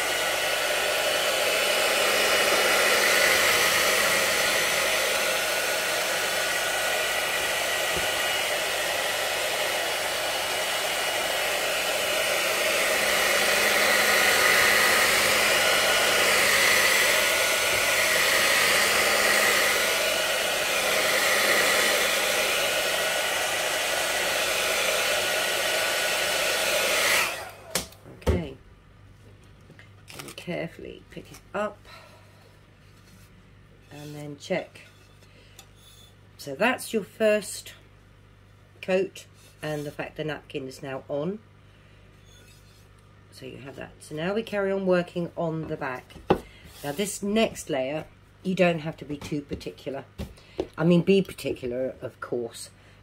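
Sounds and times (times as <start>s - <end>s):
hair dryer blowing: 0.0s - 28.0s, 43.7s - 51.5s.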